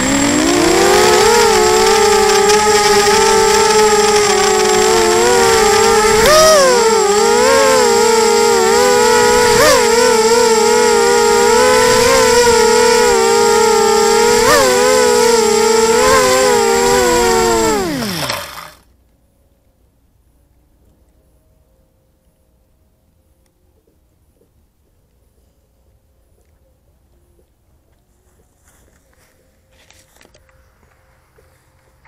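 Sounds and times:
motors spinning down: 0.0 - 18.8
quadcopter motors whining: 0.0 - 18.8.

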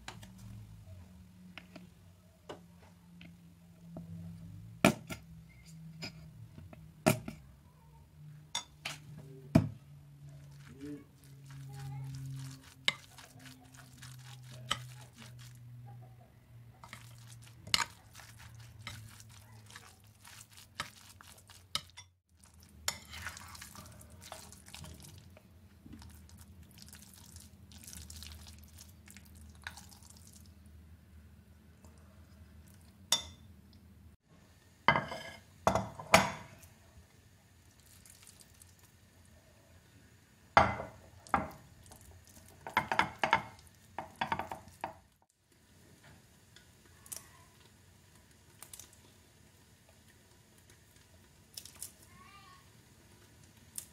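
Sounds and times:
ceramic dishes clattering: 34.9 - 36.5.

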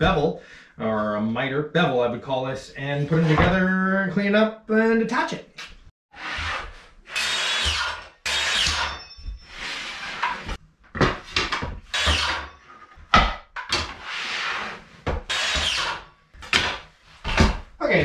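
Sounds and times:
circular saw cutting wood: 6.2 - 10.6, 11.9 - 12.6, 14.0 - 16.1.

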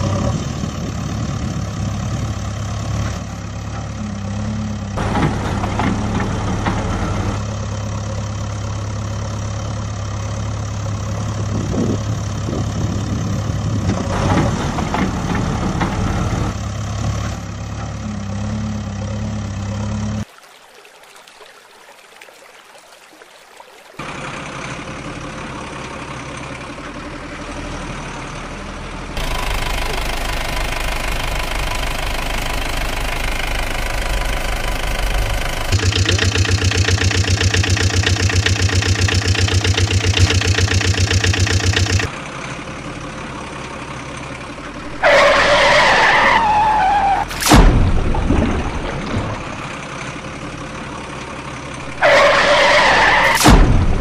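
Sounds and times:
truck engine running: 0.0 - 20.3, 24.0 - 54.0
wavering squeal: 51.8 - 53.5.

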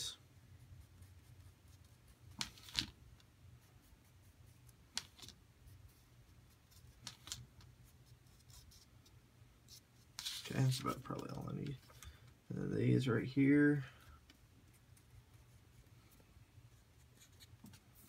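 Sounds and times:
low steady hum: 0.0 - 18.0
marker scratching on paper: 0.6 - 2.8, 3.6 - 8.9.

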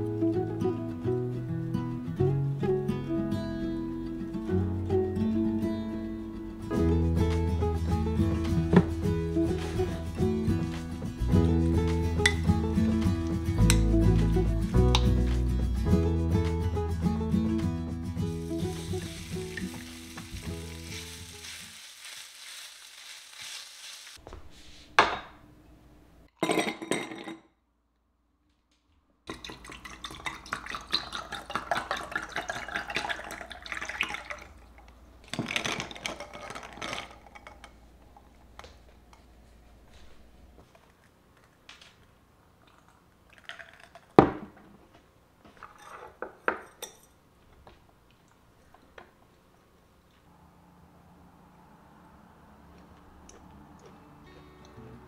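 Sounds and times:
beef sizzling in a frying pan: 18.4 - 24.2
spoon stirring ice in a glass: 35.4 - 37.7.

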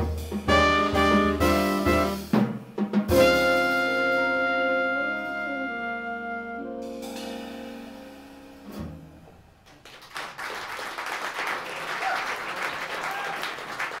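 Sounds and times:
trumpet and saxophone chord: 0.1 - 2.4, 3.1 - 8.4
audience applause: 9.7 - 14.0.

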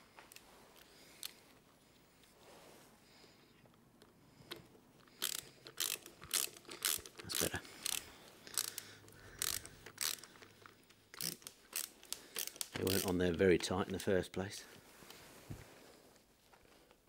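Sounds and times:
ratcheting screwdriver clicking: 4.0 - 13.7.

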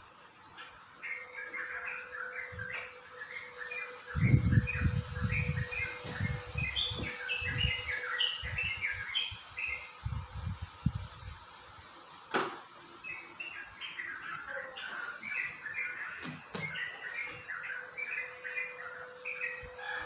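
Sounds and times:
small birds chirping: 0.0 - 12.1, 12.7 - 20.0.

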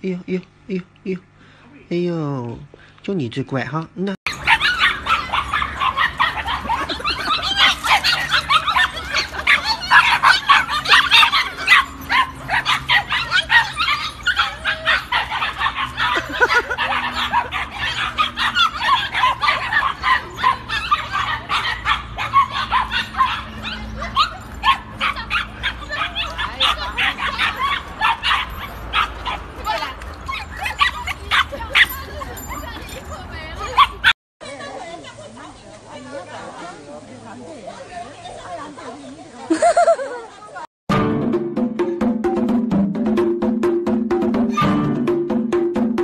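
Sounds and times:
puppies whimpering: 4.3 - 34.2
puppies yapping: 4.3 - 34.2, 44.4 - 44.8.

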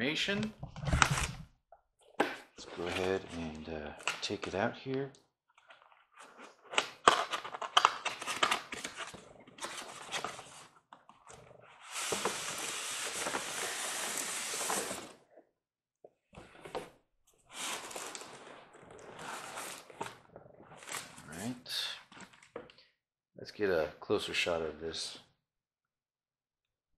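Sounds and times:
packaging knocks and scrapes: 5.6 - 15.2
packaging sliding and rustling: 6.2 - 15.2, 17.5 - 21.3.

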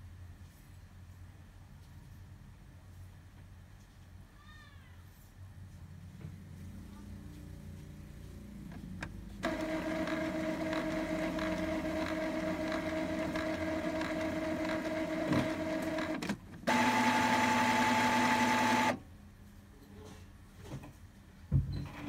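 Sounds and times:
printer motor whine: 9.4 - 19.0.

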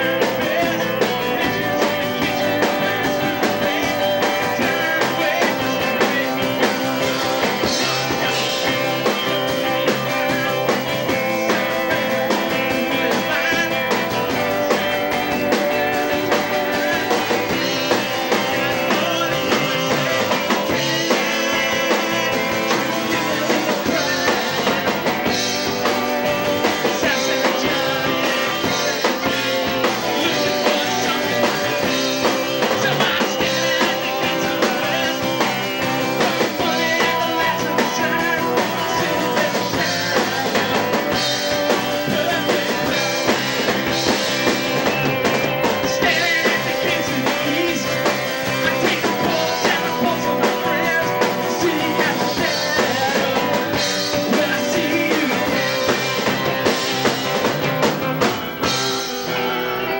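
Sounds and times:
bass guitar: 0.0 - 59.9
drum kit: 0.0 - 59.9
electric guitars: 0.0 - 59.9
man singing: 0.0 - 59.9.

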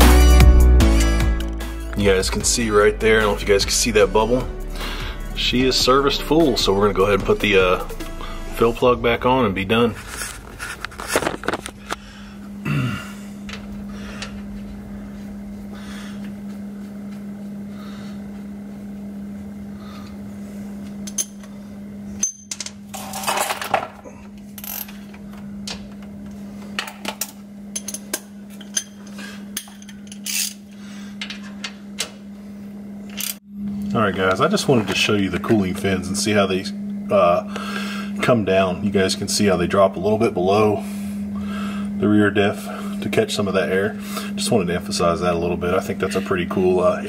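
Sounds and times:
steady low hum: 0.0 - 47.0
metal tools clinking and scraping: 22.2 - 23.8, 26.8 - 30.6.

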